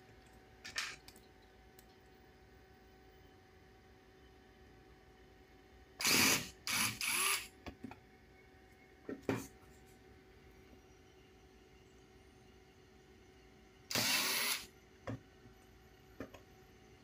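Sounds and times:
electric screwdriver running: 0:06.0 - 0:07.5, 0:13.9 - 0:14.7.

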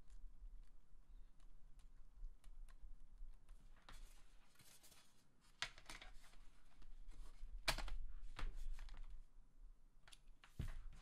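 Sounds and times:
plastic laptop cover clicks and knocks: 0:07.6 - 0:09.1.

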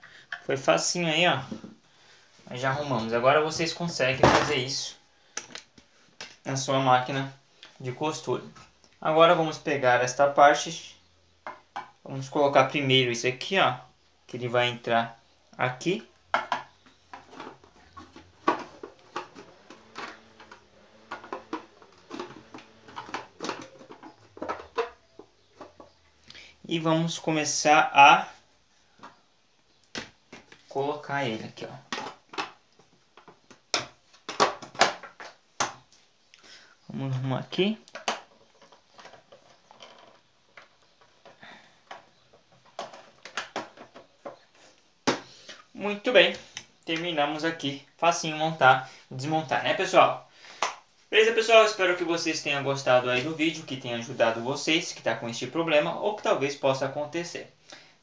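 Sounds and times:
plastic cover clicks and knocks: 0:16.3 - 0:26.0, 0:31.9 - 0:35.9, 0:42.6 - 0:44.4.

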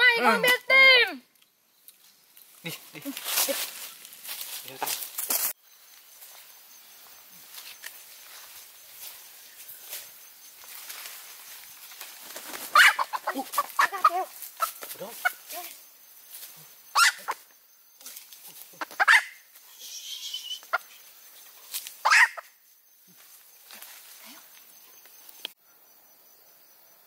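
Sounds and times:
chickens clucking: 0:12.3 - 0:15.5
chicken squawks: 0:12.6 - 0:15.4, 0:16.9 - 0:17.4, 0:18.8 - 0:20.9, 0:22.0 - 0:22.5.

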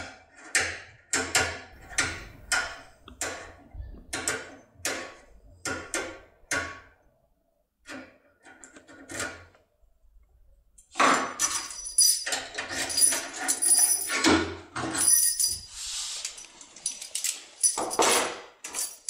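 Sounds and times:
metal keys jangling: 0:11.4 - 0:14.3, 0:14.9 - 0:19.0.

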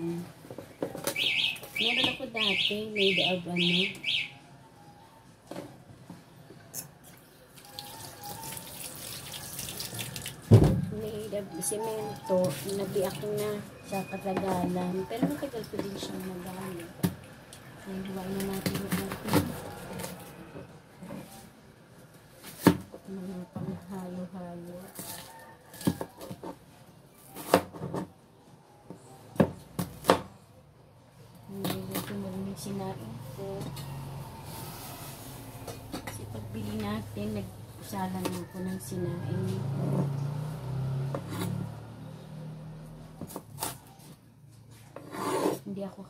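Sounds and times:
water running from tap into sink: 0:07.7 - 0:10.4.

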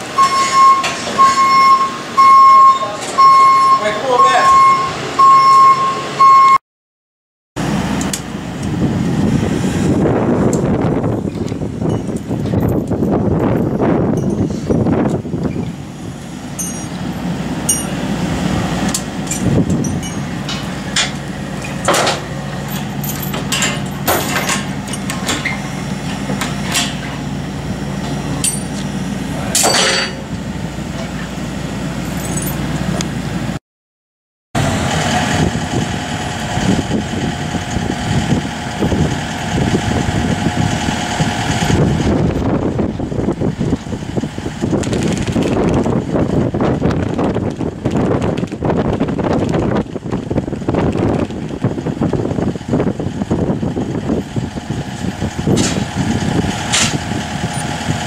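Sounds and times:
excavator diesel engine: 0:00.0 - 0:06.6, 0:07.6 - 0:33.6, 0:34.6 - 0:58.0
metal hooks clinking: 0:32.1 - 0:32.6.

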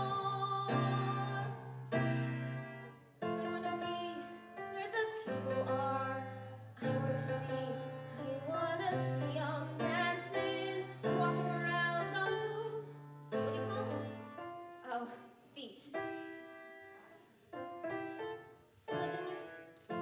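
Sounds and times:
girl singing: 0:00.0 - 0:01.9, 0:03.2 - 0:16.4, 0:18.9 - 0:20.0
piano chords: 0:00.0 - 0:15.1, 0:15.9 - 0:20.0.

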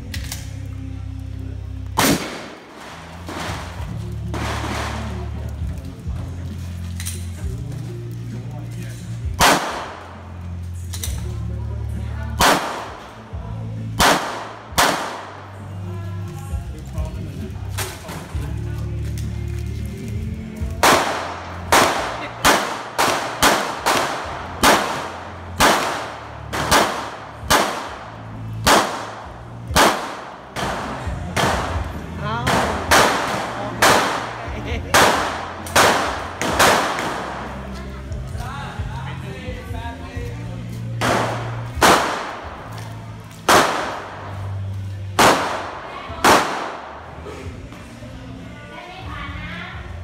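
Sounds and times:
pistol shots echoing: 0:02.0 - 0:03.8, 0:04.4 - 0:05.3, 0:09.4 - 0:10.3, 0:12.4 - 0:13.2, 0:14.0 - 0:15.6, 0:20.8 - 0:37.6, 0:41.0 - 0:44.6, 0:45.2 - 0:47.2.

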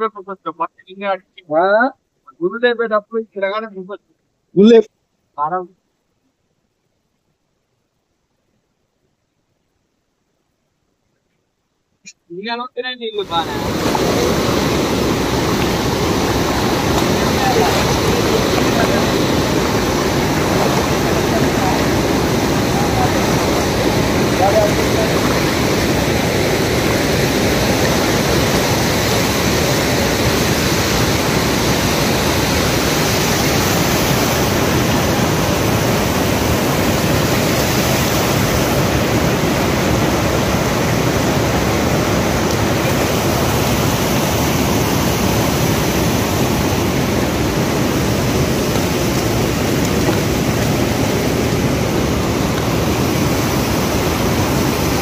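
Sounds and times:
stream water rushing over rocks: 0:13.0 - 0:55.0.

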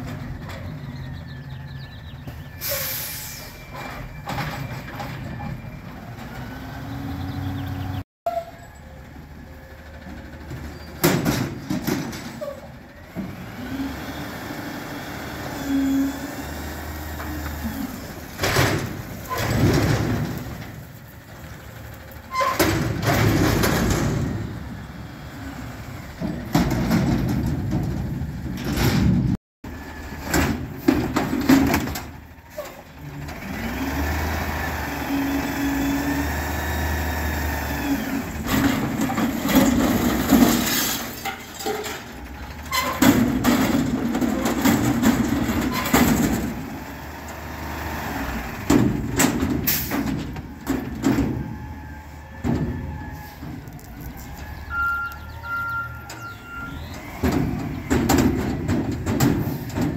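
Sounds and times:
diesel engine revving: 0:05.6 - 0:08.1, 0:09.0 - 0:59.9
loose metal banging and clanking: 0:10.4 - 0:12.8, 0:17.2 - 0:21.0, 0:22.1 - 0:24.8, 0:26.1 - 0:29.4, 0:30.2 - 0:32.8, 0:38.2 - 0:47.4, 0:48.5 - 0:53.8, 0:55.4 - 0:59.9.

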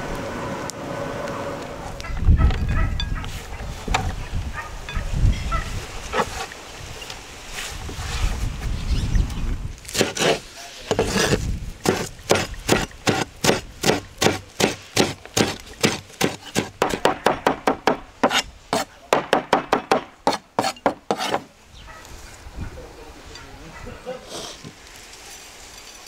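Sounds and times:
knife chopping on wooden board: 0:09.9 - 0:21.5.

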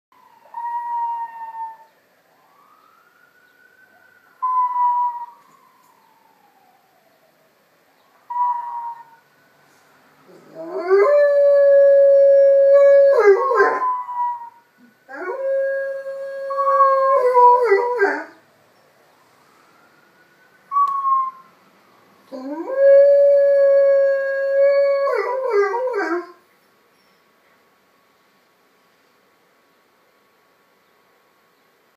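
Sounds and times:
siren wailing: 0:00.2 - 0:09.4, 0:10.3 - 0:18.4, 0:19.2 - 0:26.3
dog howling: 0:10.3 - 0:18.4, 0:22.3 - 0:26.4.

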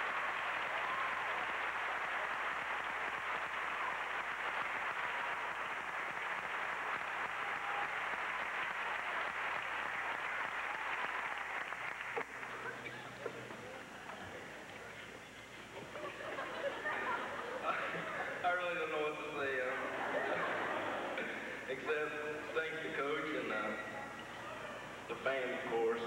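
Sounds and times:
crowd applauding: 0:00.0 - 0:13.8.

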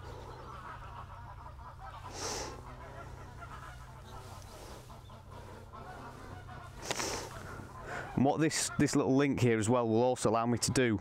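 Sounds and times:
steady low hum: 0:00.0 - 0:08.8
distant geese honking: 0:00.0 - 0:11.0
short rustle: 0:03.6 - 0:07.7.

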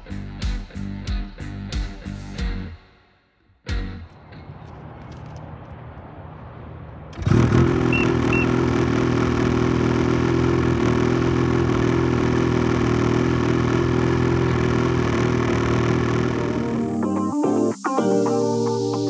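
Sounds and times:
snowmobile engine idling: 0:07.2 - 0:16.8
short high beeps: 0:07.9 - 0:08.5.

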